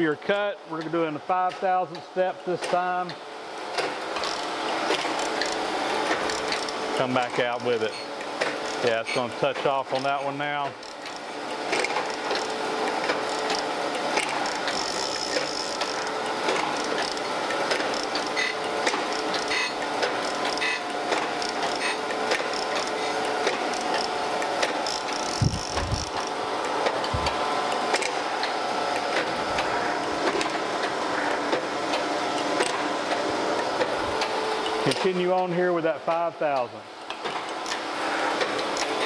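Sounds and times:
surface grinder grinding metal: 14.4s - 20.8s.

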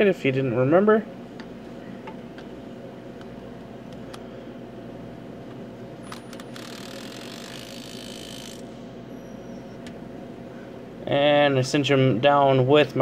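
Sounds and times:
steady shop hum: 0.0s - 13.0s
impact wrench running: 6.0s - 8.9s.

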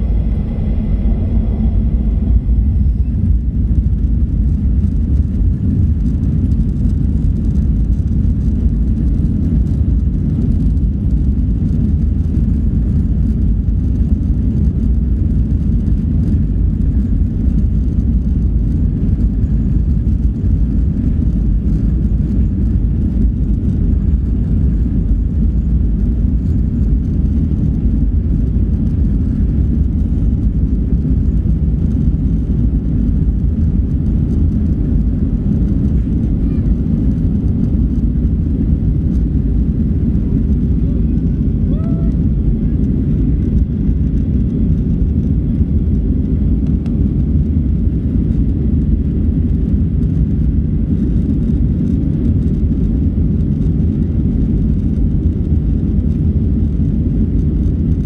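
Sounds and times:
jet airliner cabin rumble: 0.0s - 58.0s.

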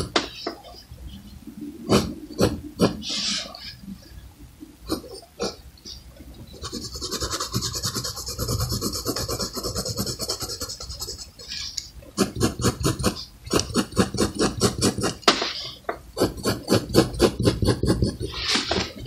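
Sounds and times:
pencil scratching on paper: 6.6s - 15.6s, 16.2s - 19.0s.

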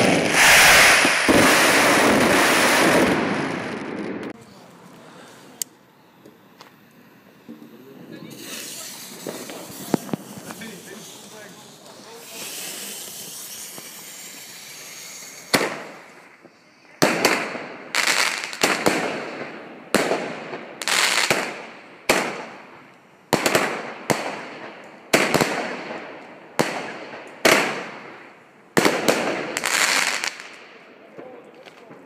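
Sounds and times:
firework bangs with hiss: 0.0s - 4.4s, 6.3s - 32.0s.

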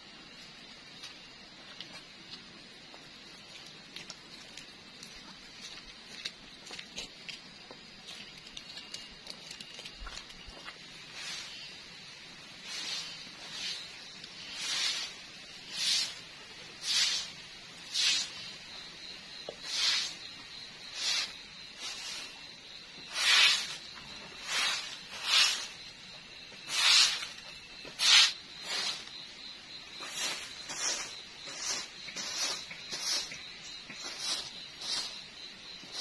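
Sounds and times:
broom sweeping concrete floor: 10.5s - 36.0s.

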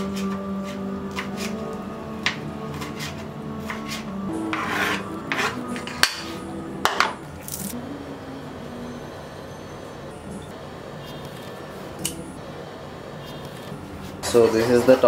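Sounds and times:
knife scraping cutting board: 0.0s - 1.6s, 2.7s - 6.4s.

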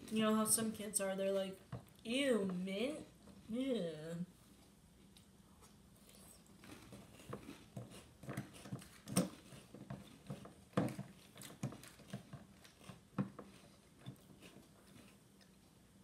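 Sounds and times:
chewing crunches: 4.6s - 15.8s.

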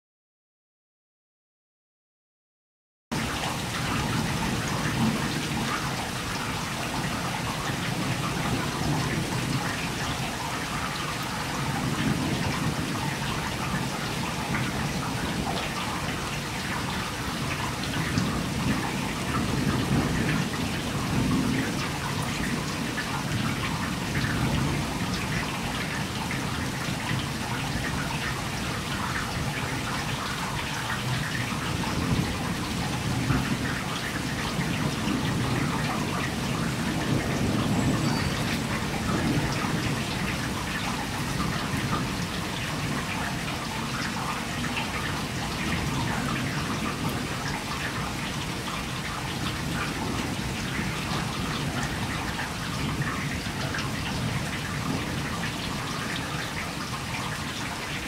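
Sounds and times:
heavy rain pouring: 3.1s - 58.0s
low rumbles of thunder: 31.0s - 43.6s.

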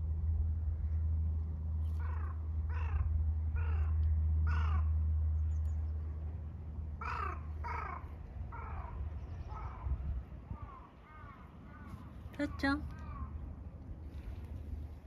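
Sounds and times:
crow cawing: 2.0s - 4.9s, 7.0s - 9.9s, 10.5s - 13.4s.

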